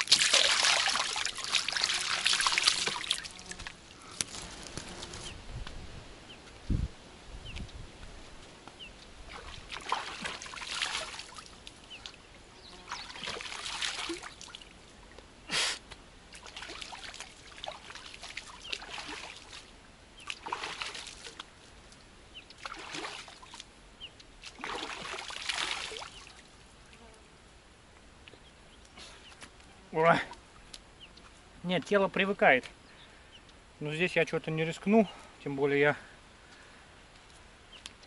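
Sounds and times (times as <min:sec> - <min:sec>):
sharp water slap: 0:00.0 - 0:03.3, 0:09.3 - 0:12.2, 0:20.3 - 0:21.5, 0:24.4 - 0:26.2
water splashing: 0:00.0 - 0:04.2, 0:09.2 - 0:14.8, 0:16.3 - 0:21.6, 0:22.4 - 0:23.7, 0:24.4 - 0:26.6.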